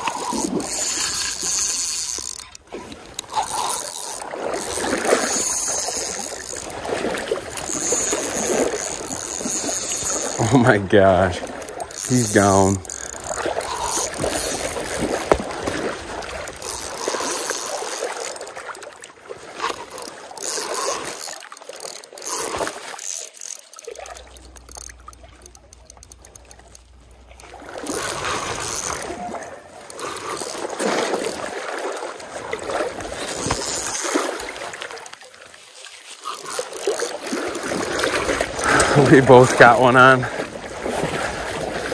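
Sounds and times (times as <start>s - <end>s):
rapid clicks: 0.0s - 29.2s, 36.2s - 39.0s
water splashing around wading legs: 0.0s - 41.9s.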